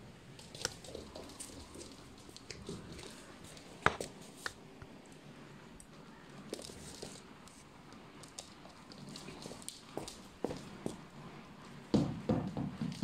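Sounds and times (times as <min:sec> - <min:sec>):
ball tapping on wooden floor: 0:11.9 - 0:13.0.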